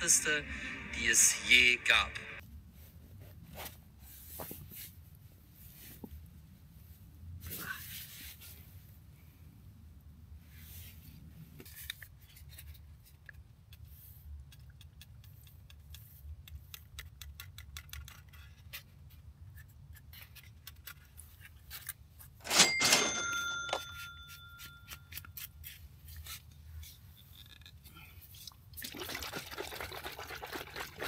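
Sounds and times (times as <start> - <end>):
loud metallic clink ringing: 22.5 - 24.8.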